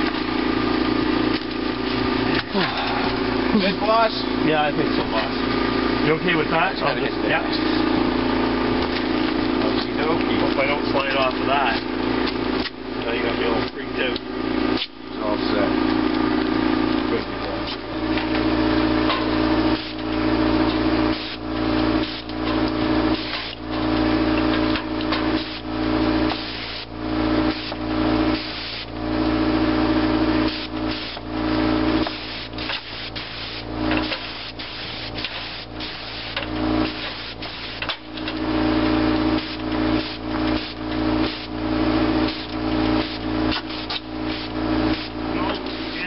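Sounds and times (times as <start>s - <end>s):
motor hum: 0.0s - 46.0s
paint spray gun hissing: 26.3s - 26.9s, 27.5s - 28.9s, 30.5s - 31.3s, 32.0s - 37.9s, 39.4s - 41.6s, 42.2s - 46.0s.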